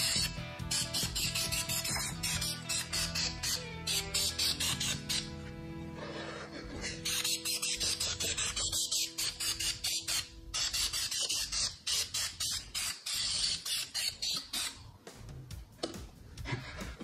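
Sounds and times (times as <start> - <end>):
spray paint hissing in bursts: 0.0 - 5.2, 6.8 - 15.0.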